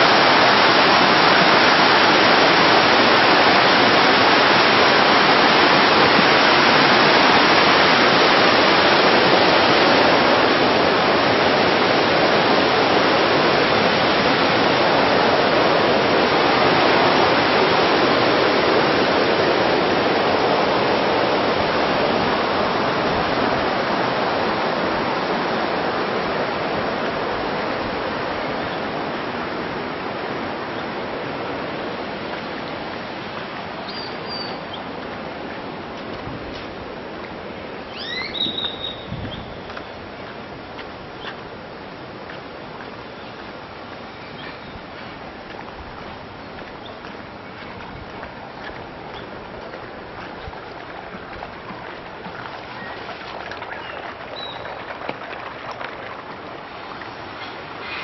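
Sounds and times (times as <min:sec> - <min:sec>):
running water in a pool: 0:00.0 - 0:58.0
faint high chirp: 0:33.8 - 0:34.8, 0:37.9 - 0:40.0.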